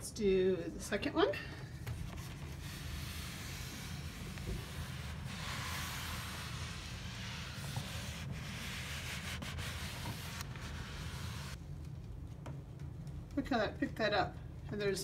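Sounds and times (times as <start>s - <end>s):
mitt scrubbing a shelf: 2.0s - 11.6s.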